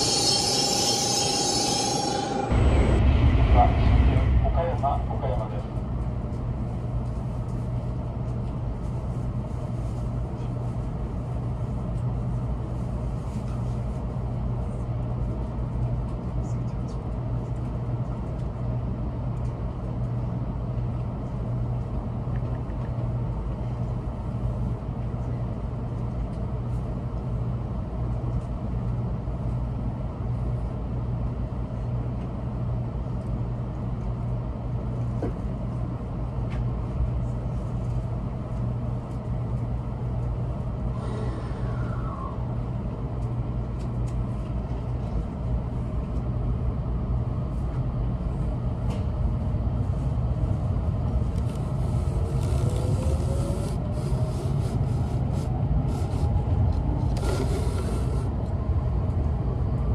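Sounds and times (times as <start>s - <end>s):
brief falling tone: 0.0s - 3.2s
low train cabin hum: 0.0s - 59.9s.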